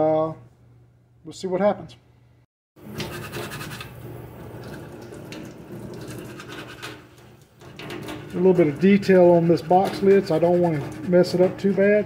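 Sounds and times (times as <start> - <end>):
tap water running into sink: 4.4 - 8.8
scrubbing pad scratching plastic: 8.8 - 11.9.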